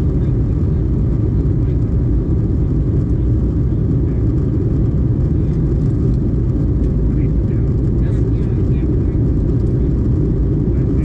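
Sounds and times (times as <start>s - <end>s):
airliner cabin noise: 0.0s - 11.0s.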